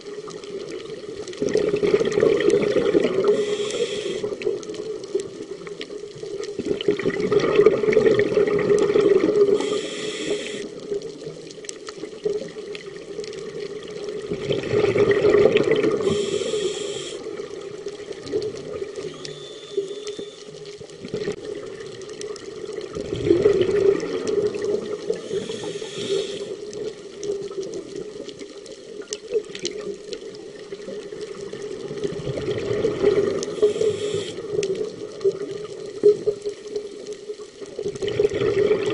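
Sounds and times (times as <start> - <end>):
bubbly underwater exhalations: 1.0 - 4.8, 6.5 - 11.0, 12.1 - 19.6, 20.9 - 22.0, 22.6 - 27.0, 31.6 - 36.4, 37.8 - 38.9
regulator inhalation hiss: 3.2 - 4.4, 9.5 - 10.8, 16.0 - 17.4, 19.1 - 20.6, 25.1 - 26.7, 33.5 - 34.6.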